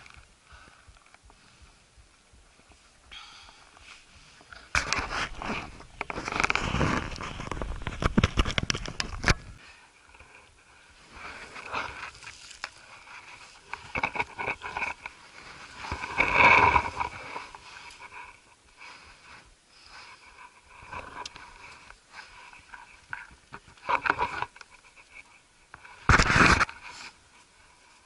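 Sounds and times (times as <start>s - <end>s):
rustling: 0.0s - 28.0s
hands scraping rock and gravel: 4.4s - 9.4s, 11.0s - 27.2s
clicks and scrapes on rock: 4.5s - 10.6s, 11.3s - 18.6s, 20.2s - 27.2s.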